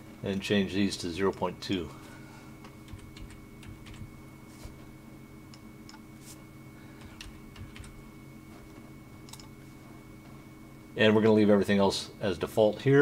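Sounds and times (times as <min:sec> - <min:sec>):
faint steady hum: 0:00.0 - 0:13.0
keyboard and mouse clicks: 0:09.2 - 0:09.5.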